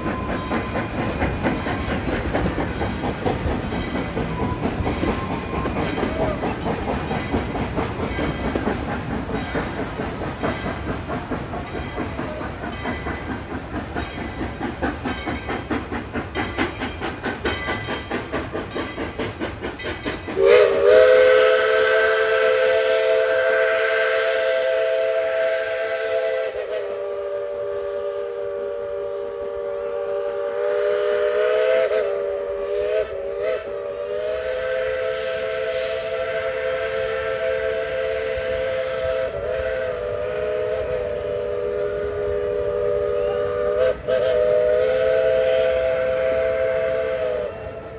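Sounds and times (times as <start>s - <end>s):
steam locomotive chugging: 0.0s - 47.9s
steam whistle blowing: 20.3s - 47.9s.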